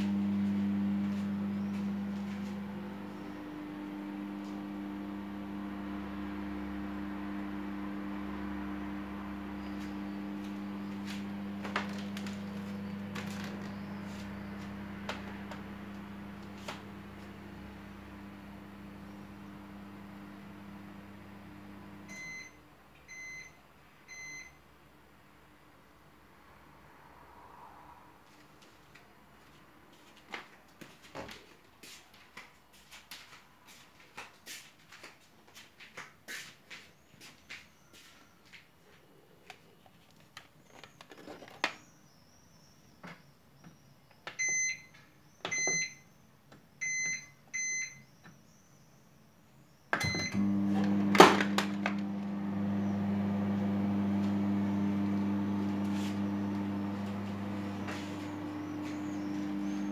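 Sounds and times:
microwave oven humming: 0.0 - 24.7, 49.9 - 59.9
microwave beeps: 21.5 - 24.6, 44.3 - 46.1, 46.8 - 48.2, 49.9 - 59.9
microwave control panel beeps: 22.0 - 24.6, 44.3 - 46.1, 46.8 - 48.2, 49.9 - 51.9.

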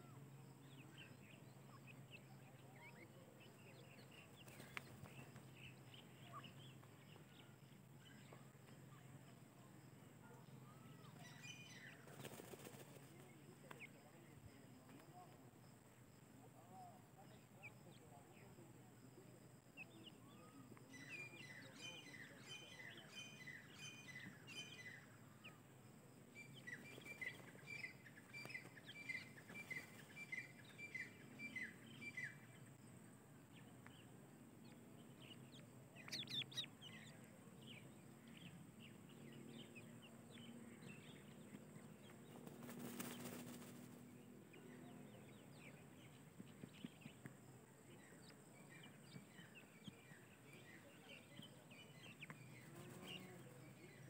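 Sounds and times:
chicks peeping: 11.2 - 14.3, 35.0 - 37.2, 41.2 - 43.9.

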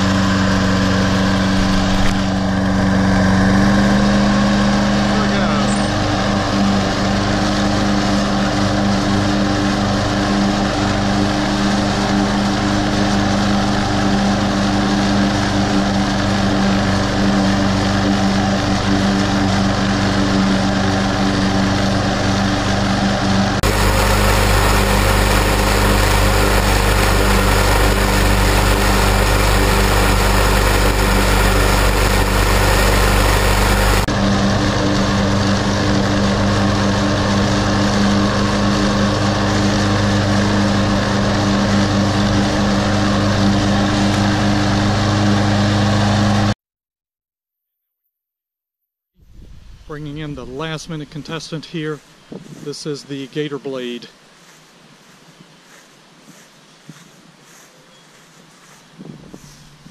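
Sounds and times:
lawn mower engine cutting grass: 0.0 - 46.6, 49.3 - 59.9
wind rumble on microphone: 49.2 - 50.6, 52.2 - 52.7, 58.8 - 59.9.

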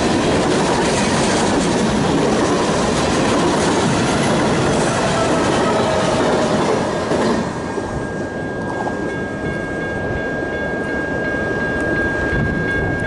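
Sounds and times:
freight train rumble: 0.0 - 13.0
thin high tone: 7.4 - 13.0.

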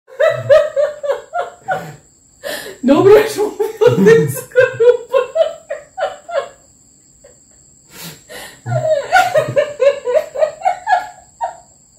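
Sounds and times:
man and woman laughing: 0.1 - 2.0, 3.3 - 6.6, 8.4 - 11.6.

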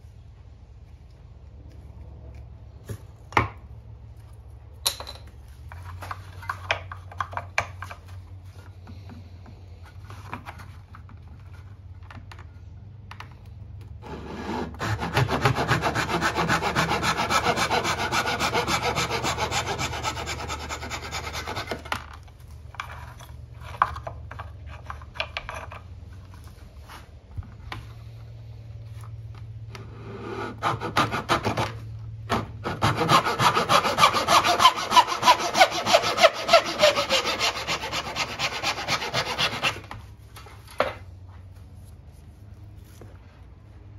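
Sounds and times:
backsaw cutting wood: 14.0 - 21.9, 30.0 - 39.9.

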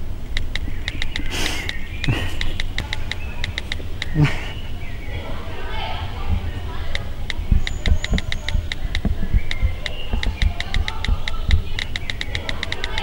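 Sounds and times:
rapid ringing clicks: 0.3 - 4.2, 6.9 - 13.0
low thumps: 6.0 - 13.0.

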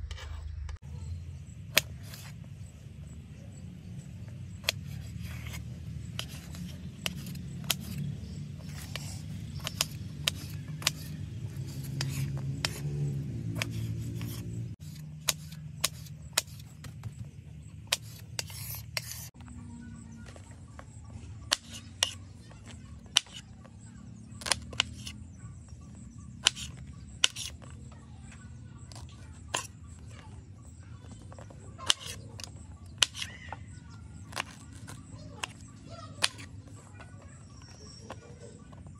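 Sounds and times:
knife chopping on wooden board: 4.6 - 17.2, 21.4 - 23.5, 24.4 - 27.6, 34.3 - 36.5.

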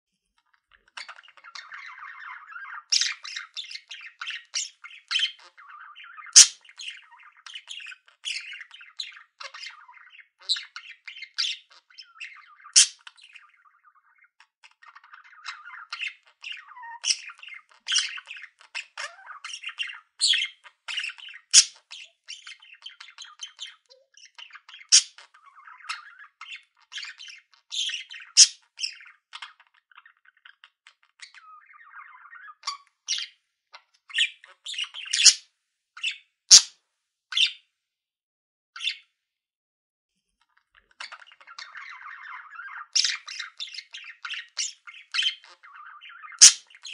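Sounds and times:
budgerigars chattering: 0.7 - 33.3, 34.1 - 35.4, 36.0 - 36.7, 40.8 - 46.9
loud bird calls: 1.0 - 13.8, 14.8 - 29.6, 34.1 - 35.4, 36.0 - 36.7, 41.0 - 46.9.

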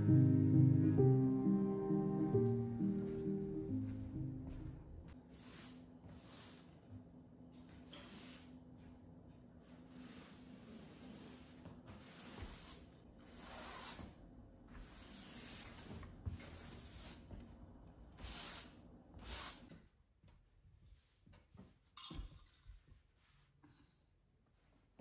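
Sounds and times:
mop swishing across floor: 5.1 - 14.1, 14.7 - 17.4.

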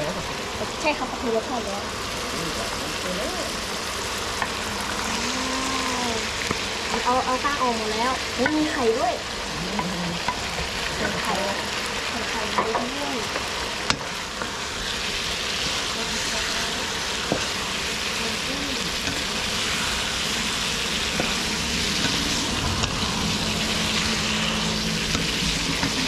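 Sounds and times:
food sizzling in hot oil: 0.0 - 26.0
low hum: 18.4 - 26.0.

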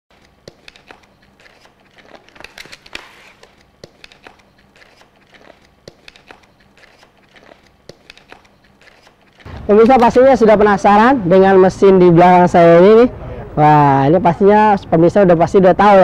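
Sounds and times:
crinkling handling noise: 0.1 - 9.7.

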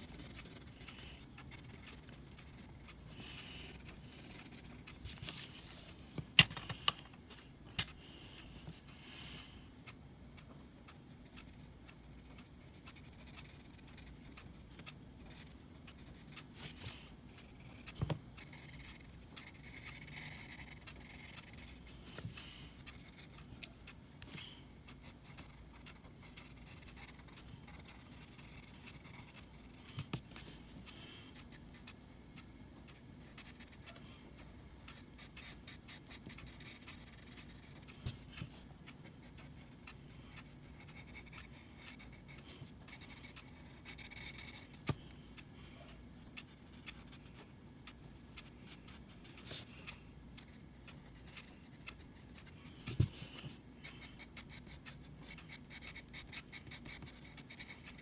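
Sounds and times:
pencil scratching on paper: 0.0 - 5.9, 17.4 - 22.3, 35.2 - 38.6, 40.4 - 44.7.

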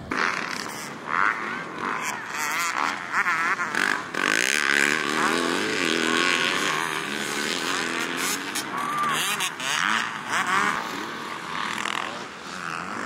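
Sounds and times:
motocross bike engine revving: 0.0 - 13.0.

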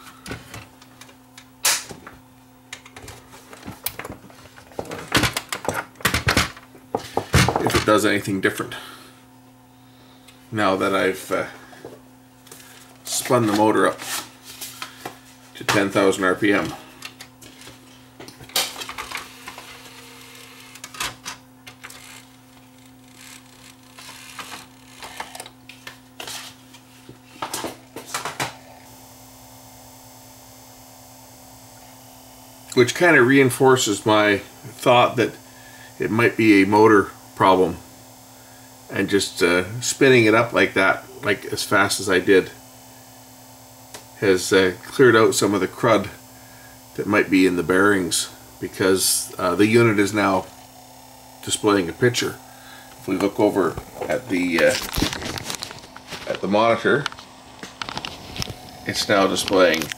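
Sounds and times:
faint steady hum: 0.0 - 59.9
disc drive clicking and clattering: 0.2 - 8.0, 16.6 - 26.4.

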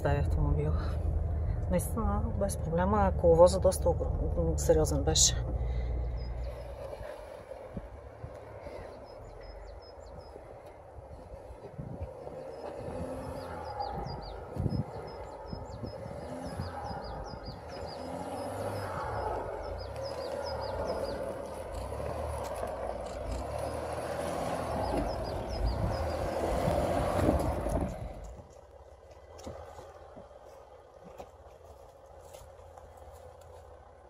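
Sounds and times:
off-road vehicle engine: 0.0 - 34.0
small birds chirping: 5.6 - 7.8, 8.4 - 28.3.

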